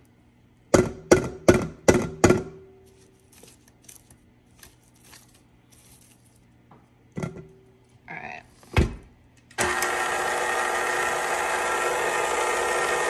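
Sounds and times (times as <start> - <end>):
electric mixer beating batter: 9.6 - 13.0.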